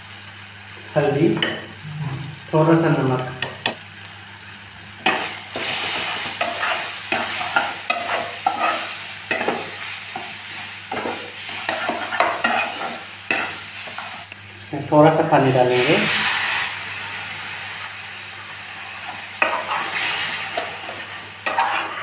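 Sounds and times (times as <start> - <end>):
masala sizzling in oil: 0.0 - 22.0
spatula stirring and scraping: 5.0 - 14.3, 18.9 - 22.0.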